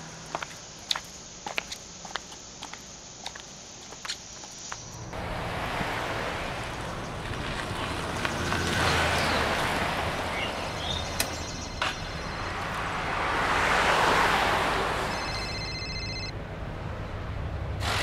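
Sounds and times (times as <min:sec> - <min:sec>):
vehicles passing: 0:04.7 - 0:18.0
mobile phone ringtone: 0:15.0 - 0:16.4.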